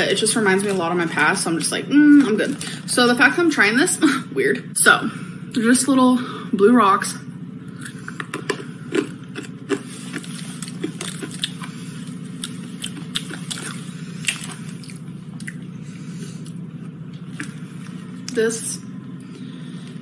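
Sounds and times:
low hum: 0:00.0 - 0:20.0
hard candy crunching: 0:07.7 - 0:15.7.

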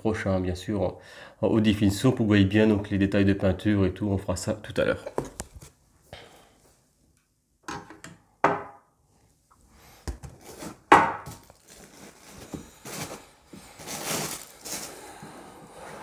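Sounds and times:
rustling in cardboard box: 0:11.4 - 0:16.0.

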